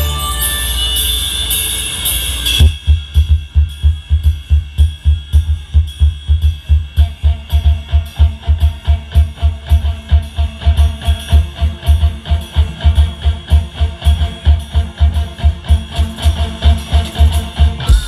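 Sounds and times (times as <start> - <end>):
held high note: 0.0 - 3.1
fast bass drum beat: 2.6 - 11.6, 16.6 - 18.0
live band music over loudspeakers: 5.7 - 18.0.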